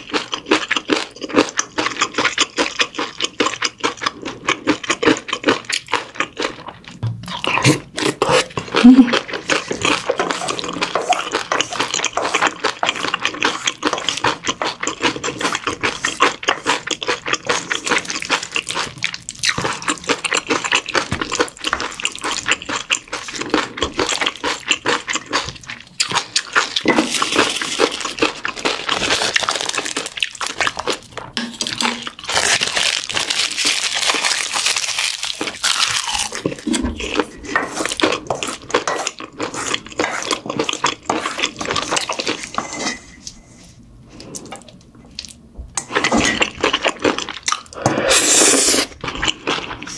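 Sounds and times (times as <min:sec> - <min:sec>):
wooden spoon scraping metal bowl: 0:36.6 - 0:40.4, 0:42.3 - 0:43.4.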